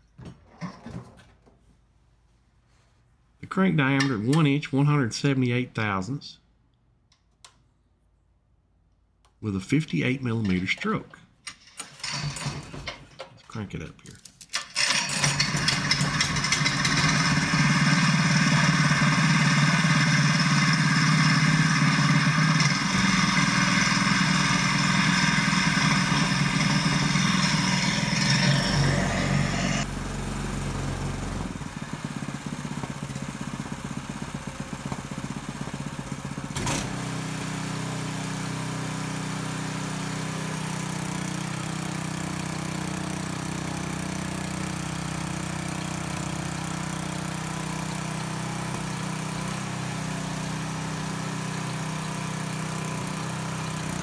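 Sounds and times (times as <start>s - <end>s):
small engine revving: 14.8s - 33.8s, 34.8s - 54.0s.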